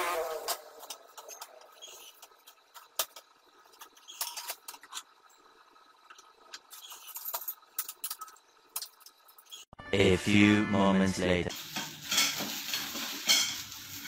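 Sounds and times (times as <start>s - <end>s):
metal tubes clinking: 6.5s - 9.6s, 11.7s - 14.0s.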